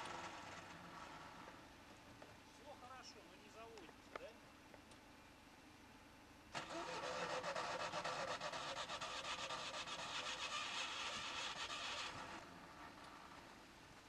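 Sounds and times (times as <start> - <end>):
off-road vehicle rasping in sand: 6.6 - 13.6.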